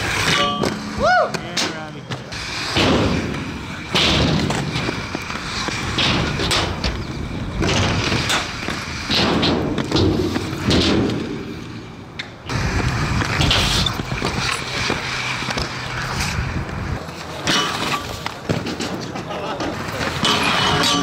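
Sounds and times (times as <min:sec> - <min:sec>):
skate wheels rolling on concrete: 0:00.0 - 0:21.0
skater landing thuds and slaps: 0:07.6 - 0:11.4.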